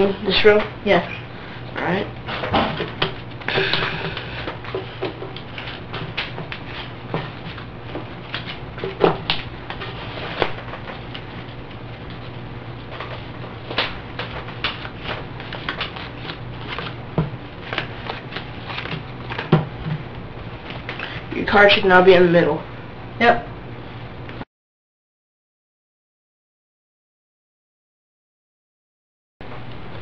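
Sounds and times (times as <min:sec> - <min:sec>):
playing cards clicking and snapping: 0:02.8 - 0:12.2, 0:12.9 - 0:19.7.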